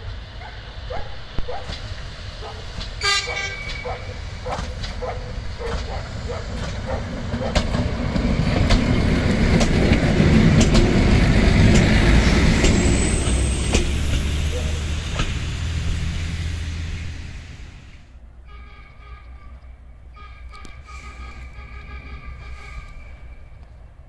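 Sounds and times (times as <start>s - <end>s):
railcar engine and wheel rumble: 0.0s - 24.0s
wheel clicks over rail joints: 3.7s - 12.0s.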